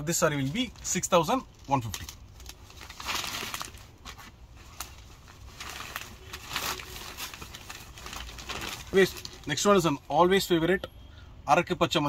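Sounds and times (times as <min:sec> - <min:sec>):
fabric rustling: 0:00.3 - 0:10.0.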